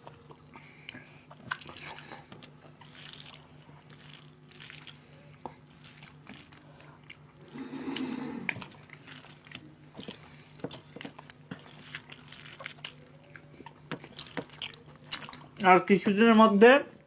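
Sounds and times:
people chewing food: 0:00.0 - 0:16.5.

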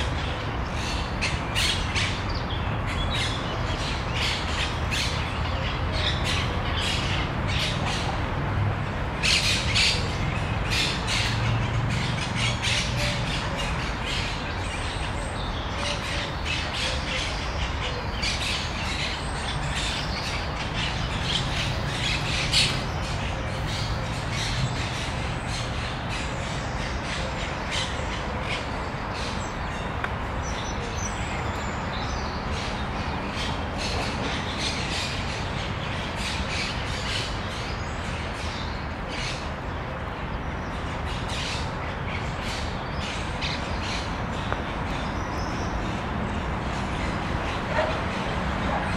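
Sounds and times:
birds calling: 0:09.1 - 0:48.9.

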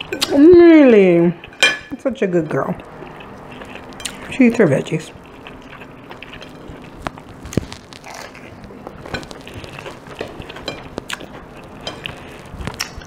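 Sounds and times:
lettuce leaf crackling: 0:05.5 - 0:13.0.

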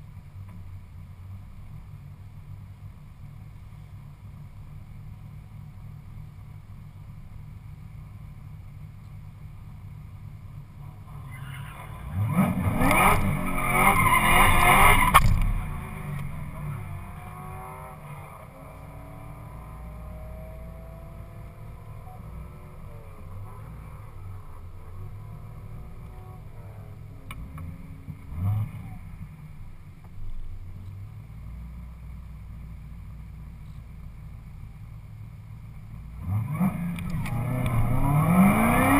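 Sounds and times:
car engine idling and revving: 0:00.0 - 0:38.9
tyres spinning and squealing: 0:11.1 - 0:15.2.

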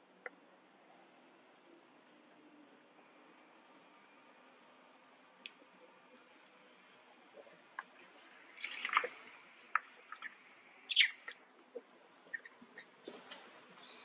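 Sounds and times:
animal chirps and squeaks: 0:10.9 - 0:11.4.

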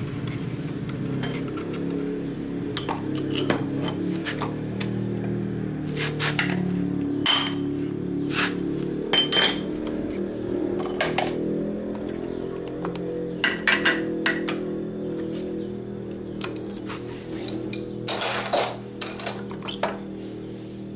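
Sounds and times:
steel tools clinking: 0:02.8 - 0:04.0, 0:09.2 - 0:10.2, 0:16.4 - 0:20.0.

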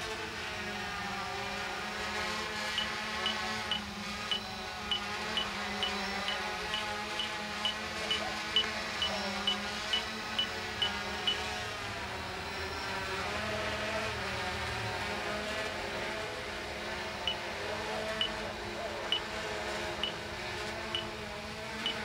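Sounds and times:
drone rotors buzzing: 0:00.0 - 0:22.0
short high beeps: 0:02.8 - 0:11.4.

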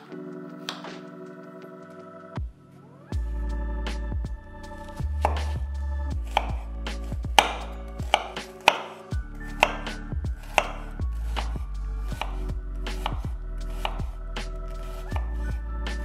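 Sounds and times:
knife chopping on wooden board: 0:05.2 - 0:05.6, 0:06.2 - 0:14.1, 0:14.9 - 0:15.3.

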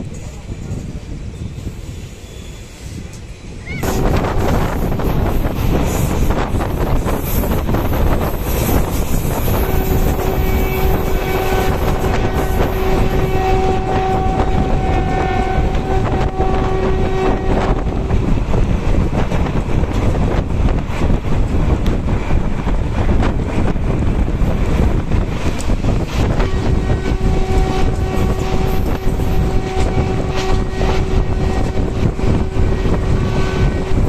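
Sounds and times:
train wheel rumble: 0:00.0 - 0:34.0
wind on microphone: 0:00.0 - 0:34.0
train horn blast: 0:08.6 - 0:18.2, 0:26.2 - 0:34.0.

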